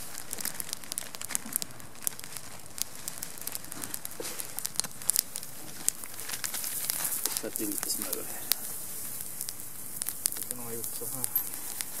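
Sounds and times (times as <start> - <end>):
campfire crackling and popping: 0.0 - 12.0.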